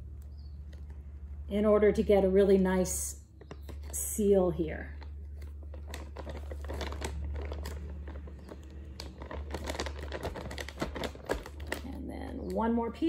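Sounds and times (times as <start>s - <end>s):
plastic bags crinkling: 3.3s - 12.6s.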